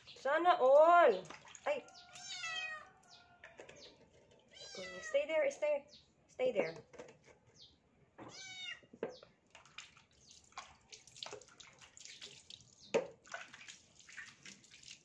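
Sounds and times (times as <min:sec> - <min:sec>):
water splashing in a basin: 0:00.0 - 0:02.6, 0:09.4 - 0:15.0
kitten meowing: 0:02.1 - 0:02.9, 0:04.6 - 0:05.2, 0:08.2 - 0:08.8.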